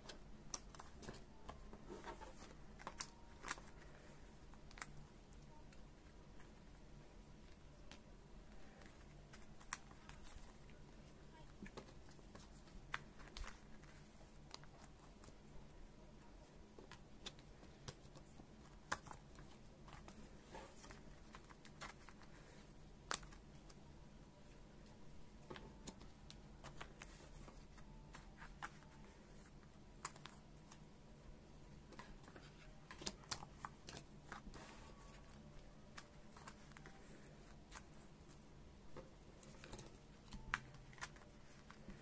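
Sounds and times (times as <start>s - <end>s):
faint steady hum: 0.0s - 42.0s
cards tapping and clicking: 38.9s - 42.0s.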